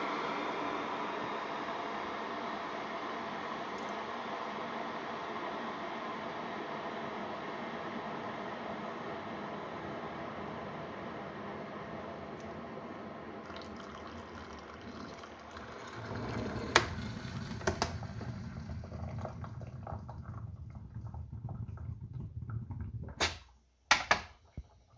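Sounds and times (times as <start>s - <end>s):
water heater hissing: 0.0s - 24.9s
hot water pouring into mug: 13.4s - 23.2s.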